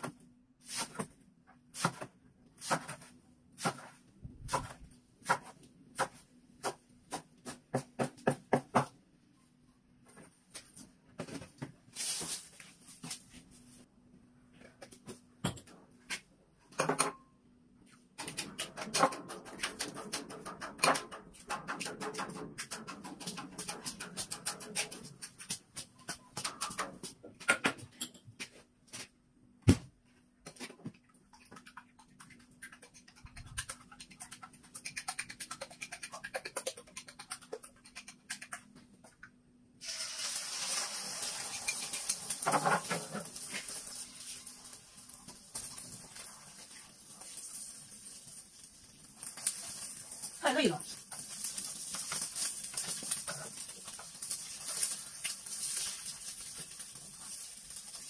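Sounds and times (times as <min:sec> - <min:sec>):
chopsticks beating eggs in bowl: 0:18.5 - 0:27.1, 0:31.3 - 0:38.8
oil crackling and popping: 0:39.8 - 0:58.0.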